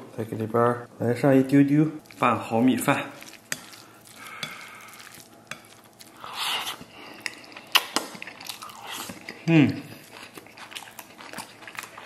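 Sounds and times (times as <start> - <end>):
chopsticks stirring in ceramic bowl: 2.0 - 7.6.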